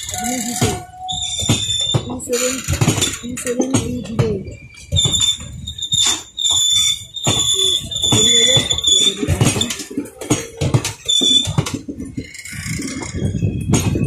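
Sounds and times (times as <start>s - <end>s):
high-pitched wheel squeal: 0.0s - 9.8s, 11.0s - 11.6s
wheels clicking over rail joints: 0.0s - 14.0s.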